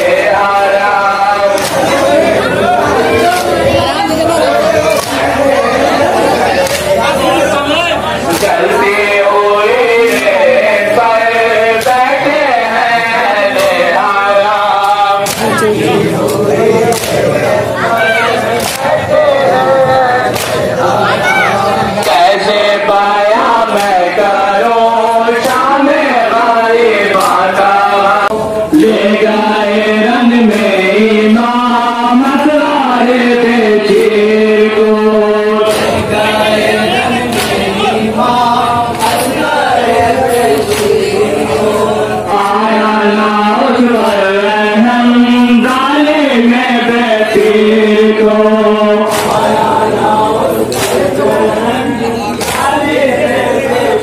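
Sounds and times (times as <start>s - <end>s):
men chanting a lament: 0.0s - 54.0s
hands slapping on chests: 1.5s - 2.0s, 3.2s - 3.6s, 5.0s - 5.3s, 6.6s - 7.0s, 8.3s - 8.6s, 13.6s - 13.8s, 14.8s - 15.6s, 16.3s - 17.2s, 18.6s - 19.0s, 20.3s - 20.7s, 35.7s - 36.0s, 37.3s - 37.7s, 40.6s - 41.0s, 49.1s - 49.6s, 50.7s - 51.1s, 52.4s - 52.8s.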